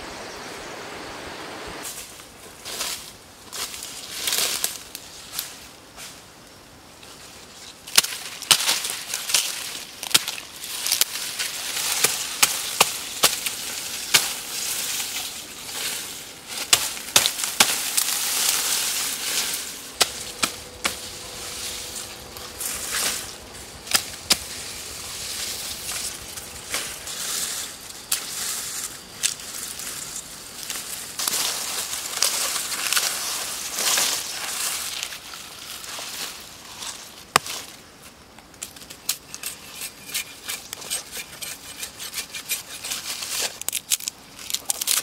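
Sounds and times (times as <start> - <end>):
rustle of stems and leaves: 0.0 - 39.8
knife chopping grass stalks: 16.6 - 27.2.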